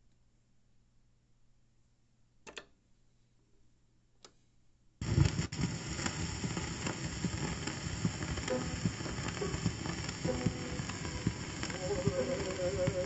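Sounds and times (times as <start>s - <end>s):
record surface hiss and crackle: 5.0s - 13.0s.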